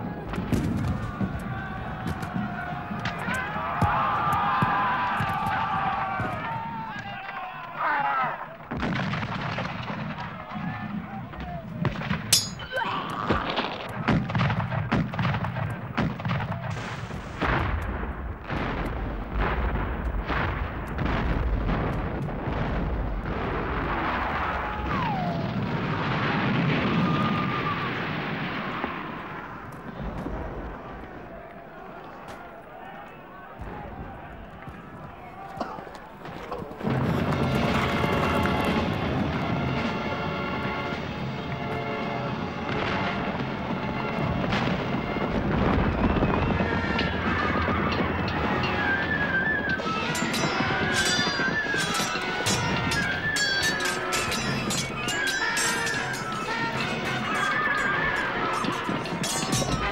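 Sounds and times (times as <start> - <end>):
pyrotechnic explosion rumble: 0.0 - 7.1, 8.6 - 12.4, 13.1 - 32.1, 36.1 - 59.9
music: 36.8 - 59.9
horses whinnying: 46.7 - 59.9.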